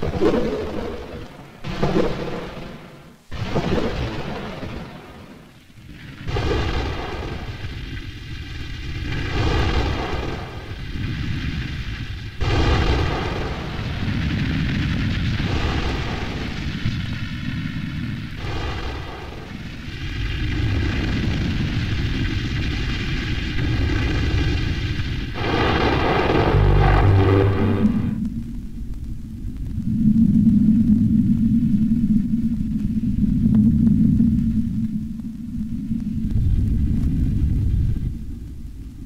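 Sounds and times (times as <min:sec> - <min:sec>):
dense deep noise: 0:00.0 - 0:39.0
steady buzz: 0:25.4 - 0:28.4.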